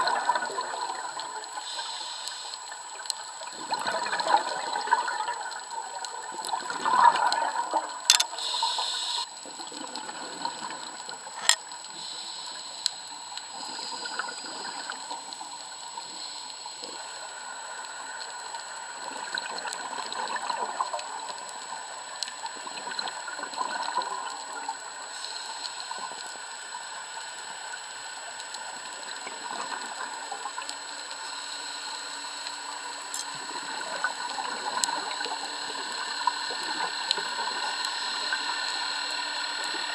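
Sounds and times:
watery hiss: 1.1s - 5.0s, 8.3s - 9.4s, 11.3s - 19.3s, 24.8s - 39.9s
underwater regulator bubbles: 3.5s - 8.4s
sharp clicks: 8.1s - 8.4s.

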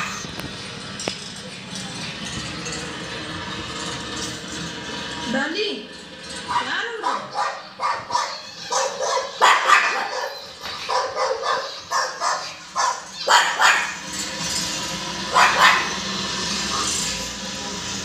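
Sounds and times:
dog barking: 6.5s - 14.1s, 15.3s - 16.0s.

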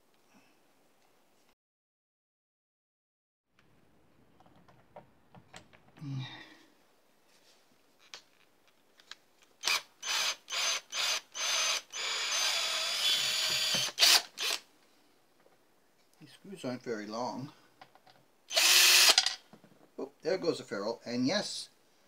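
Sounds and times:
cordless drill driving screws: 9.6s - 14.6s, 18.5s - 19.3s.

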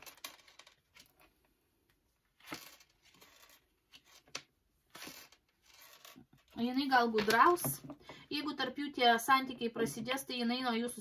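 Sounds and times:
paper cards sliding and tapping: 2.4s - 6.2s.

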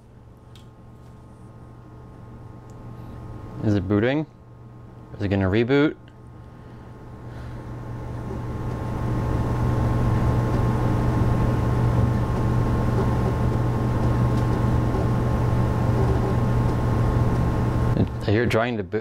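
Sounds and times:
floppy drive humming: 0.0s - 18.8s.

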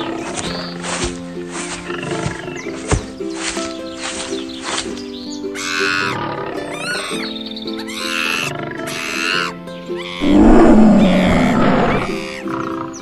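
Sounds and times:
background music: 0.0s - 13.0s
high-pitched animal cries: 5.6s - 7.2s, 7.8s - 12.4s
cartoon lion roaring: 10.2s - 12.2s.

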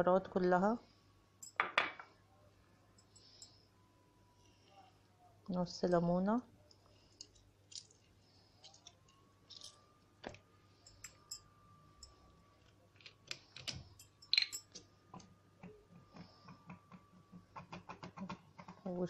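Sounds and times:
faint high whine: 2.2s - 7.1s, 8.2s - 12.9s.

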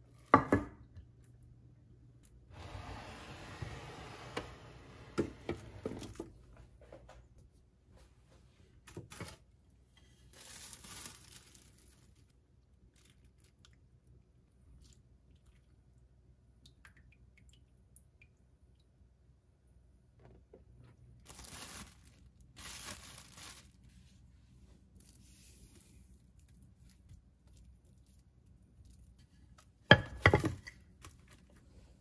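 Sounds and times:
plastic wrap crinkling: 8.8s - 12.3s, 21.2s - 24.1s.

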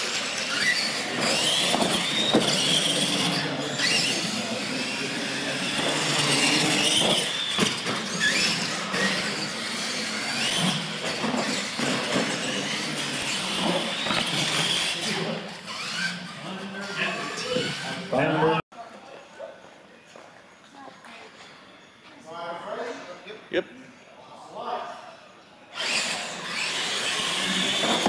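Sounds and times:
rc truck motors whining: 0.0s - 18.6s, 25.7s - 28.0s.

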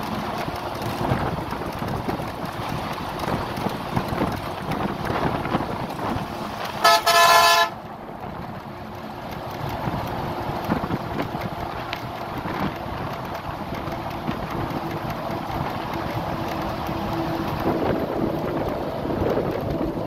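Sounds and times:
road and wind noise: 0.0s - 20.0s
vehicle horn honking: 6.8s - 7.8s.

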